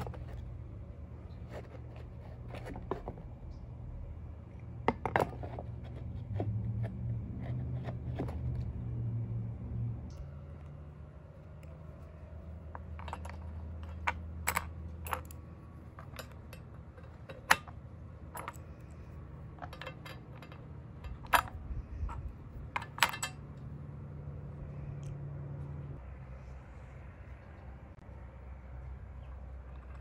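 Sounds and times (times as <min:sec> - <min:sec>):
low steady hum: 0:00.0 - 0:30.0.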